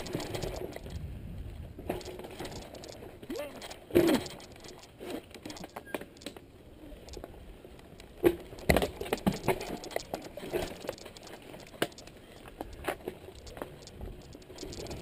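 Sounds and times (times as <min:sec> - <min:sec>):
bike rattling clicks: 0:00.0 - 0:01.1, 0:01.8 - 0:15.0
bike wheels knocking on rocks: 0:07.1 - 0:15.0.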